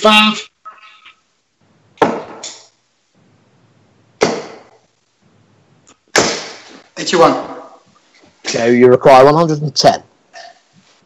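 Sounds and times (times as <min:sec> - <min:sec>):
darts thudding into dartboard: 0:06.1 - 0:06.8.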